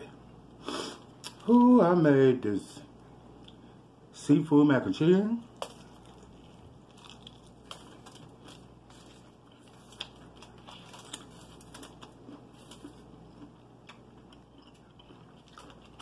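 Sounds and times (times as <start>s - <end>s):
chewing fried chicken: 5.5s - 16.0s.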